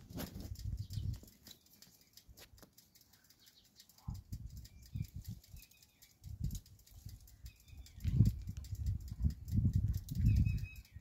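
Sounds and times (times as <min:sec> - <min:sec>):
wind buffeting microphone: 0:00.0 - 0:01.4, 0:04.1 - 0:11.0
light crackles: 0:00.0 - 0:10.2.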